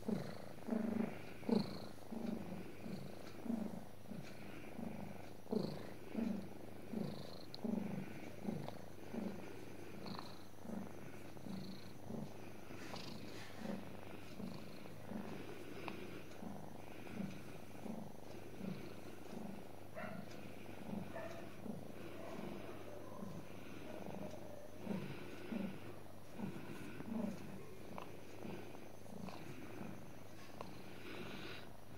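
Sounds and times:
cat purring: 0.0s - 31.9s.

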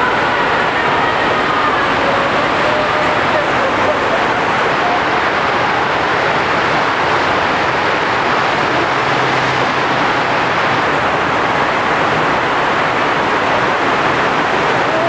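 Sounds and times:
water rushing: 0.0s - 15.0s.

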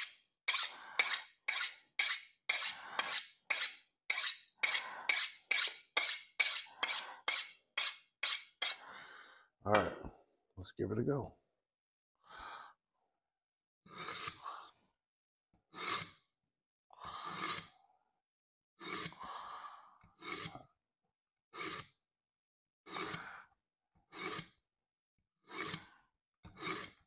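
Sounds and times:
knife scraping through sharpener: 0.0s - 8.8s, 13.9s - 14.4s, 15.7s - 16.2s, 17.3s - 17.7s, 18.8s - 19.2s, 20.2s - 20.6s, 21.6s - 22.0s, 22.9s - 23.2s, 24.1s - 24.6s, 25.5s - 25.9s, 26.5s - 27.0s.

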